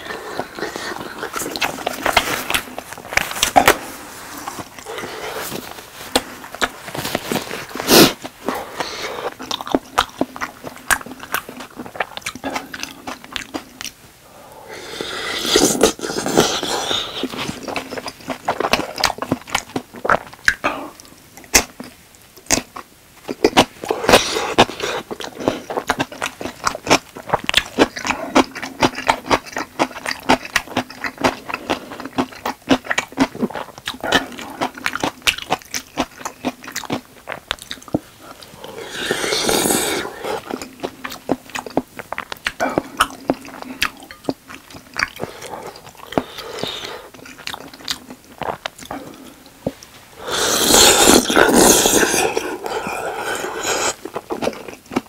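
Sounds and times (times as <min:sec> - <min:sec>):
slurping: 0:14.7 - 0:19.4, 0:37.3 - 0:55.0
chewing and wet mouth clicks: 0:24.5 - 0:39.2, 0:40.3 - 0:49.9.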